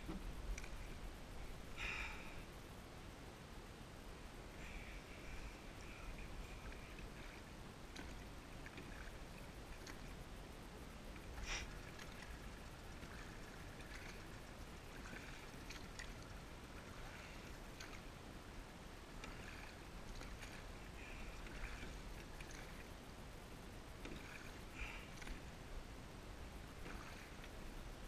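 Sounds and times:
low steady rumble: 0:00.0 - 0:28.0
paddle splashing in water: 0:05.4 - 0:10.1, 0:11.1 - 0:18.2, 0:19.1 - 0:23.0, 0:24.0 - 0:25.5, 0:26.7 - 0:27.8.

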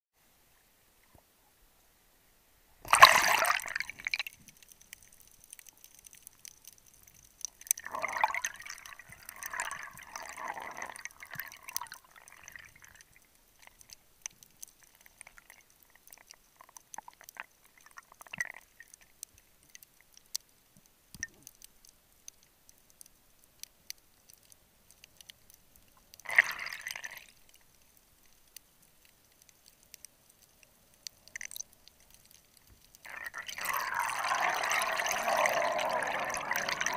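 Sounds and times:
sea water splashing: 0:02.8 - 0:06.8, 0:33.0 - 0:36.9
underwater bubbling: 0:02.8 - 0:19.9, 0:24.3 - 0:28.4, 0:29.0 - 0:36.9
faint clicks: 0:03.7 - 0:10.0, 0:12.6 - 0:36.9.

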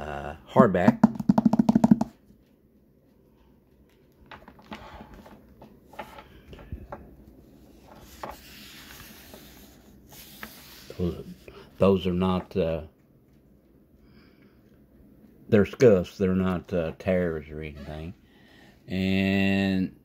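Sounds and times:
fingers brushing paper: 0:07.8 - 0:11.4.

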